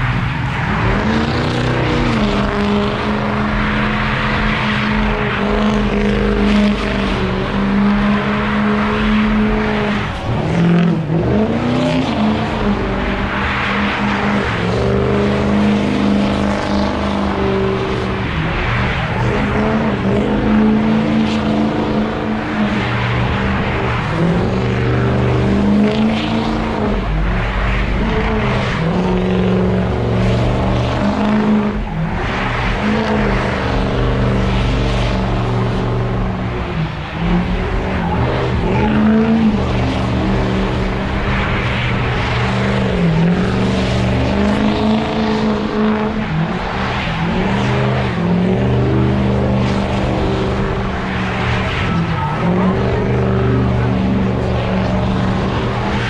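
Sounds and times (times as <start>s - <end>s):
car engine revving high: 0.0s - 56.0s.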